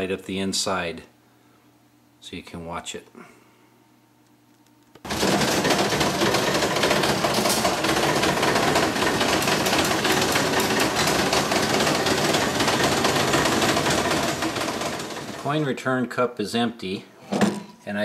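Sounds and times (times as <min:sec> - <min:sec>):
slot machine gears clattering: 0:05.1 - 0:15.5.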